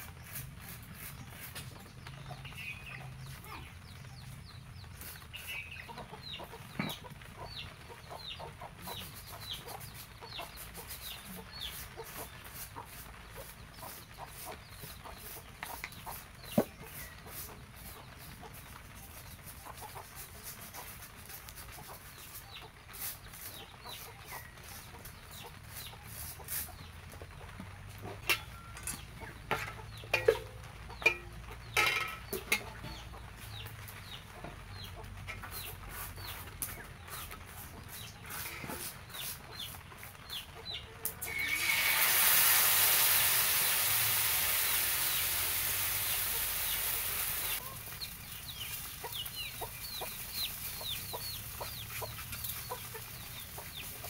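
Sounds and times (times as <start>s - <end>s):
chickens clucking: 0.1s - 54.0s
cookware clinking: 29.6s - 32.6s.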